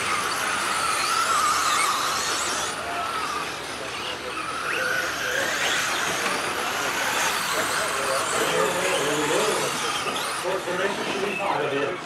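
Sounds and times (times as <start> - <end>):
rc truck motors whining: 0.0 - 12.0.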